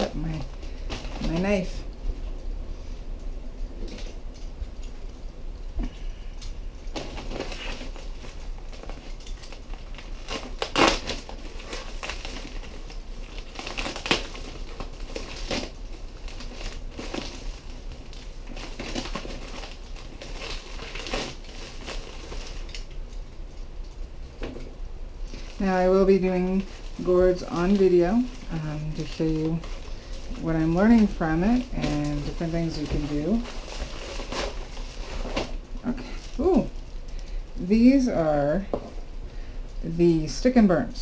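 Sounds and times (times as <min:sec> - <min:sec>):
plastic mailer crinkling: 0:06.8 - 0:24.3, 0:25.2 - 0:38.7.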